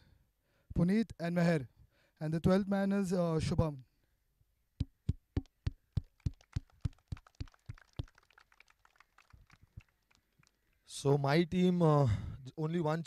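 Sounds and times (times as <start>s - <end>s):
people clapping: 6.0s - 10.9s.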